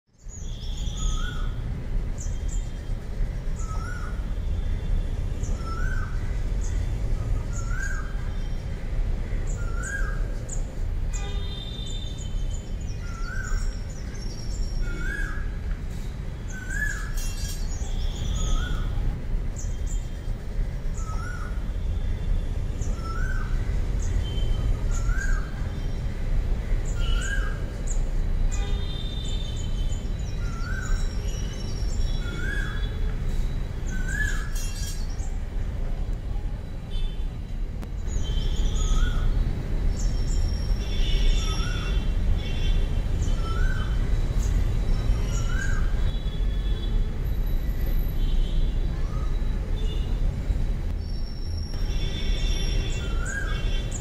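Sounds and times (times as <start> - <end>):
bird chirps and whistles: 33.9 - 35.0.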